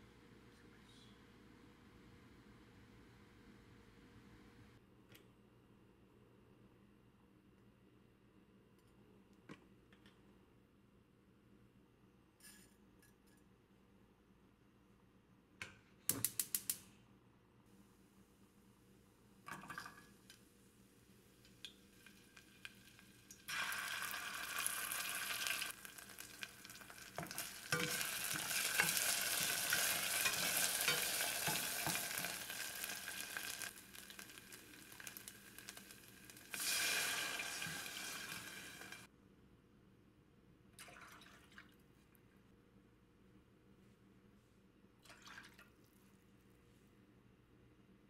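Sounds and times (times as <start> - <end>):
food sizzling in hot oil: 21.5 - 39.1.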